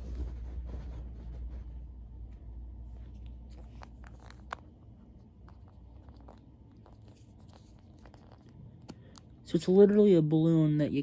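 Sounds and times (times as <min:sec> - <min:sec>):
plastic capsule clicks and rubbing: 0:03.2 - 0:10.0.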